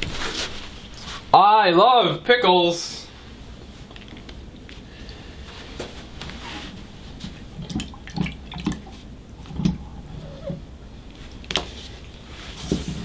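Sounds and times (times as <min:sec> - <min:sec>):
wet taps and drips: 0:07.6 - 0:09.8.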